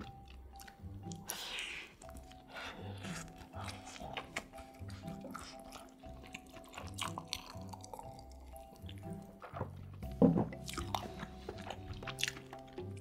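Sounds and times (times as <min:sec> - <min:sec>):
chewing mouth sounds: 0:00.0 - 0:09.5, 0:10.5 - 0:13.0
soft background music: 0:00.0 - 0:13.0.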